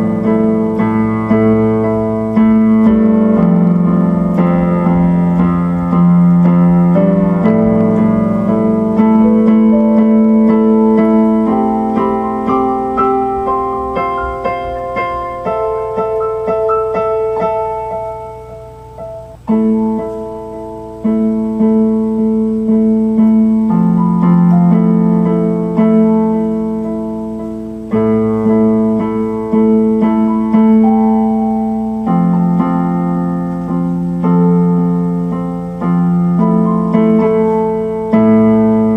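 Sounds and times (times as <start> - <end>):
slow piano chords on keyboard: 0.0 - 38.9.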